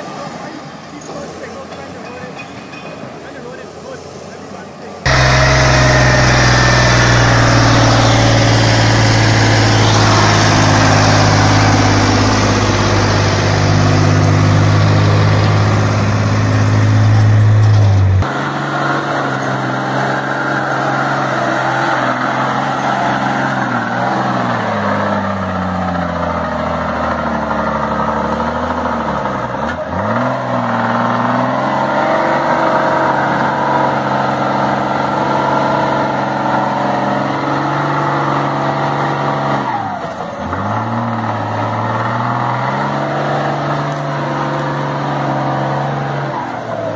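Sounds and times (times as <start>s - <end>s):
truck engine running hard: 3.3s - 46.9s
bus engine revving: 5.0s - 46.9s.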